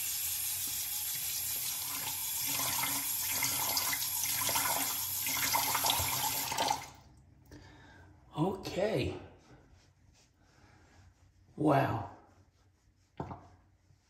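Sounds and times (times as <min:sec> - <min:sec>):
tap running into a sink: 0:00.0 - 0:06.9.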